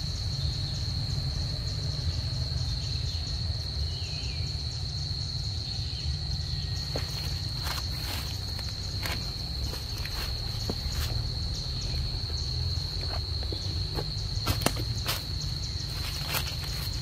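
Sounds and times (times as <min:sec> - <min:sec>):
high-pitched insect drone: 0:00.0 - 0:17.0
footsteps rustling dry leaves: 0:06.8 - 0:17.0.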